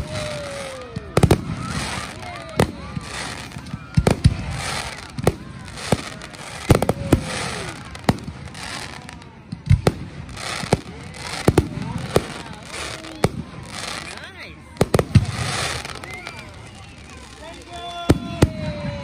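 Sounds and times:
fireworks bangs: 0:00.0 - 0:19.0.

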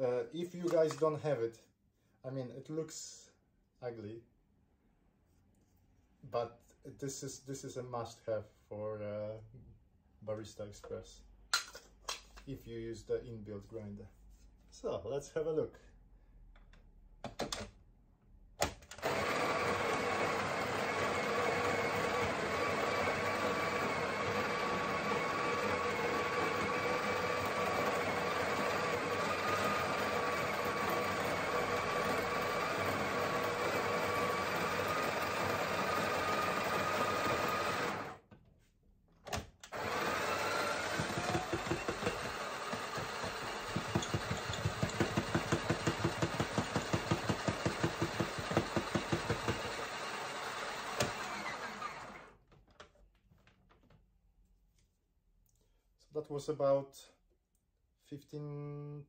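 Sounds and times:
coffee grinder motor whine: 0:19.0 - 0:38.2, 0:39.7 - 0:52.3.

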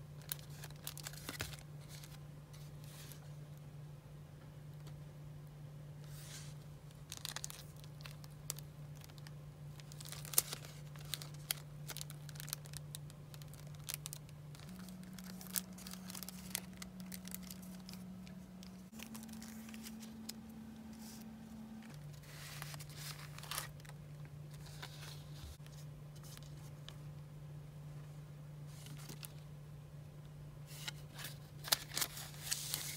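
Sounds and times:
packaging rustling and crinkling: 0:00.2 - 0:03.3, 0:06.1 - 0:27.0, 0:28.7 - 0:29.4, 0:30.7 - 0:32.9
low steady tone: 0:14.6 - 0:22.7.

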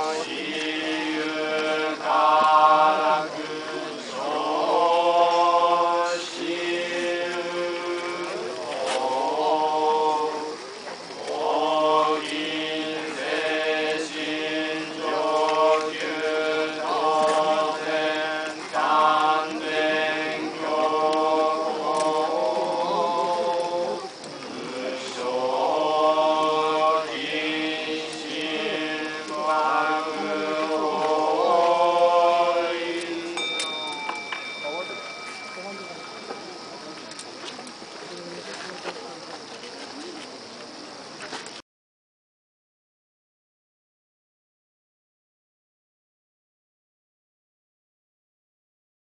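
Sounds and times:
monks chanting: 0:00.0 - 0:37.5.

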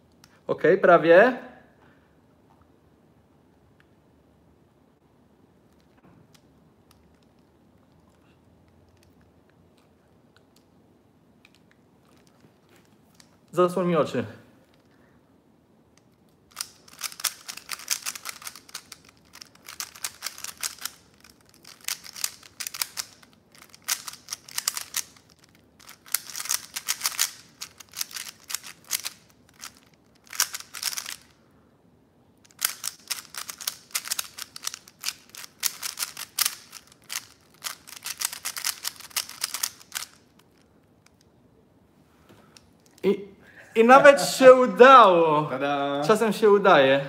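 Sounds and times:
puzzle cube plastic clicking: 0:15.9 - 0:31.4, 0:32.4 - 0:41.3.

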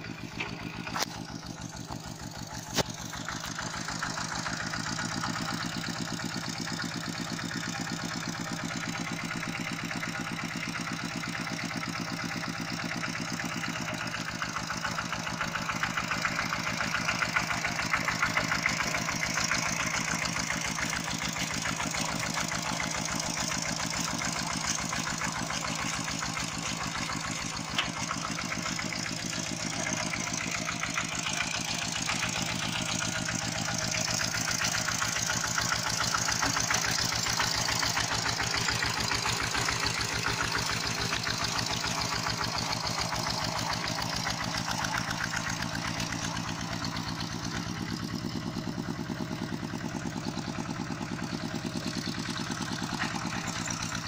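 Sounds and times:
diesel engine chugging: 0:00.0 - 0:54.0.

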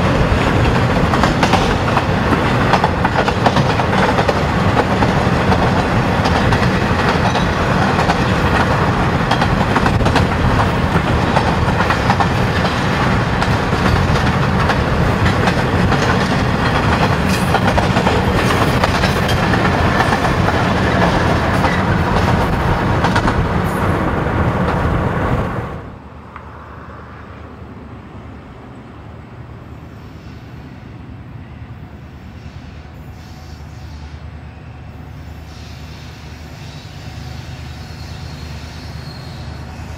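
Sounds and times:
freight train wagons clattering: 0:00.0 - 0:23.4
road and wind noise: 0:00.0 - 0:33.3
distant diesel locomotives rumbling: 0:00.0 - 0:39.9
wheels clicking over rail joints: 0:00.2 - 0:23.4.

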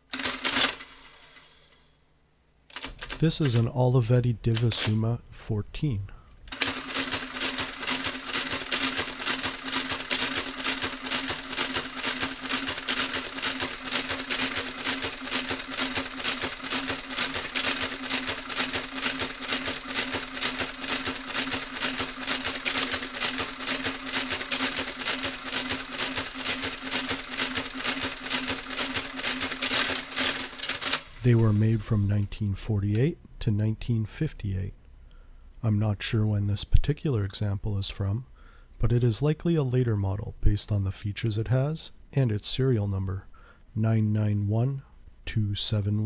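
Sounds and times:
calculator motor hum: 0:00.0 - 0:01.9, 0:06.5 - 0:31.6
printing calculator mechanism clattering: 0:00.1 - 0:01.5, 0:02.7 - 0:03.7, 0:06.5 - 0:31.2.

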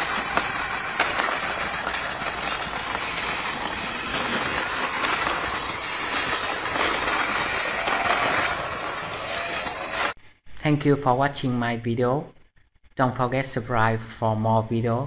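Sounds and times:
toy car rolling over stone paving: 0:00.0 - 0:10.2.

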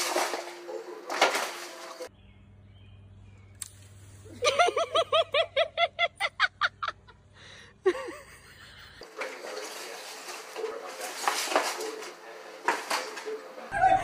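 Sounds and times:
plastic bag dragged on floor: 0:09.2 - 0:13.2.

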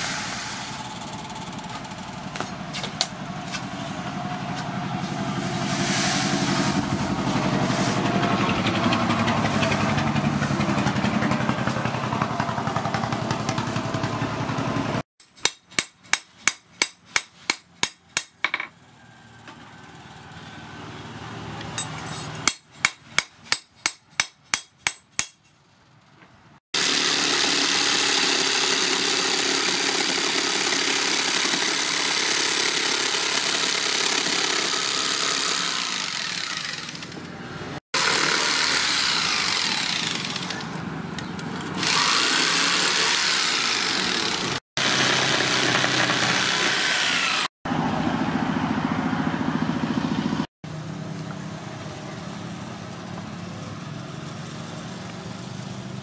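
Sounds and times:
jigsaw sawing wooden board: 0:26.8 - 0:37.3, 0:38.0 - 0:40.7, 0:41.8 - 0:47.5
power tool noise: 0:26.8 - 0:47.5.

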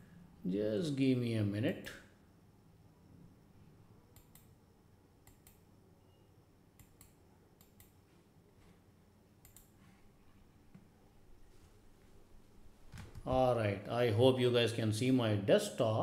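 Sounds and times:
faint computer control clicks: 0:04.1 - 0:04.6, 0:09.4 - 0:09.8.

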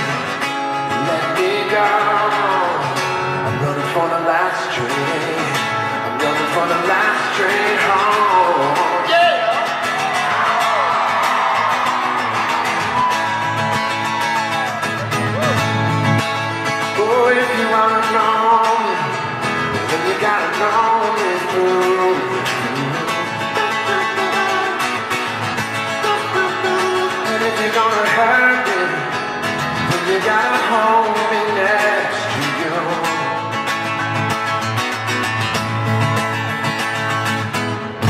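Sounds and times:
person singing: 0:00.0 - 0:10.7, 0:16.8 - 0:25.2, 0:25.8 - 0:29.2, 0:29.8 - 0:33.6
acoustic guitar strummed and picked: 0:00.0 - 0:38.0.

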